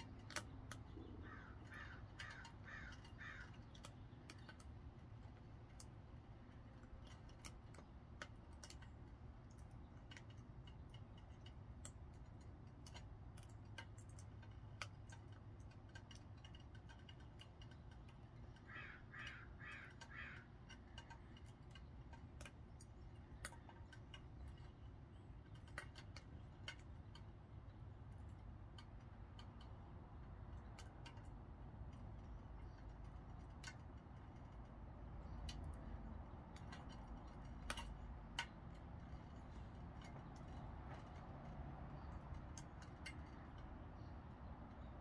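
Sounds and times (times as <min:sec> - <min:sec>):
bird calling: 0:01.0 - 0:04.0, 0:18.6 - 0:20.6.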